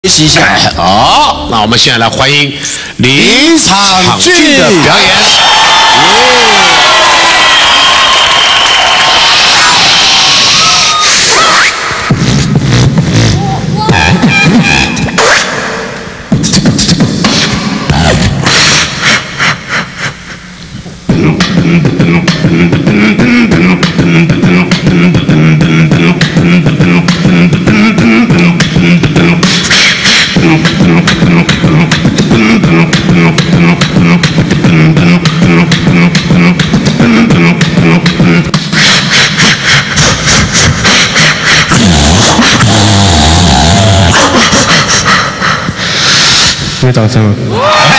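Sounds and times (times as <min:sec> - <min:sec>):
person beatboxing into a microphone: 0:09.3 - 0:47.0.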